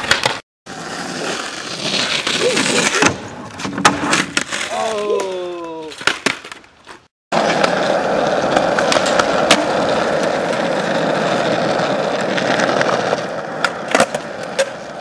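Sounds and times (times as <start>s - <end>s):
skateboard wheels rolling on asphalt: 0.0s - 15.0s
skateboard clacks: 7.4s - 15.0s.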